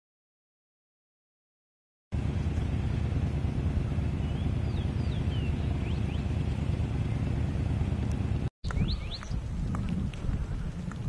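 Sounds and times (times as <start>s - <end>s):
wind buffeting microphone: 2.2s - 11.0s.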